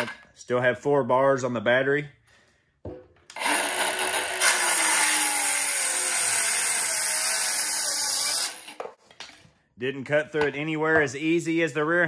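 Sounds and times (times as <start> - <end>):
circular saw cutting wood: 3.3 - 8.8.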